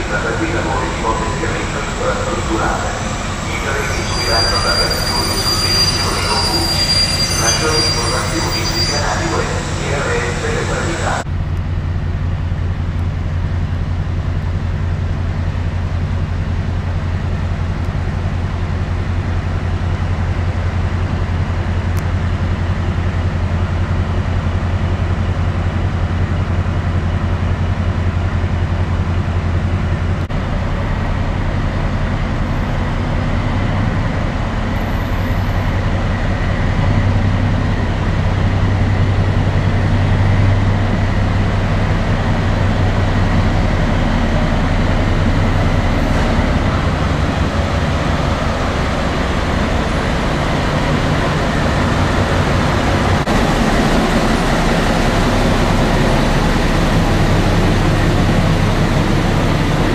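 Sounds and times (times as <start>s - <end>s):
faint high whine: 0.0s - 11.2s
diesel locomotive droning: 0.0s - 59.9s.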